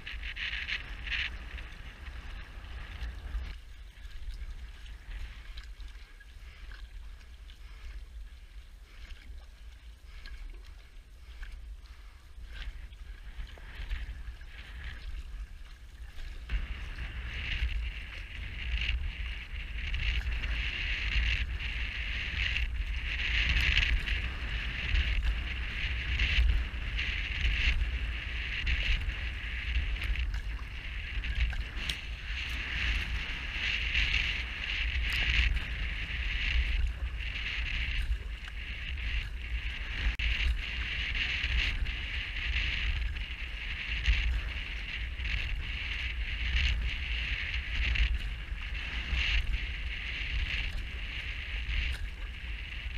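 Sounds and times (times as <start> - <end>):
water rushing along canoe: 0.0 - 52.9
wind buffeting microphone: 0.0 - 52.9.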